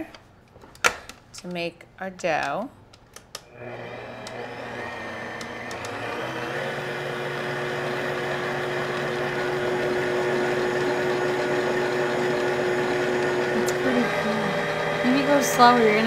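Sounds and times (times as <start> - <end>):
stand mixer motor humming: 3.5 - 16.0.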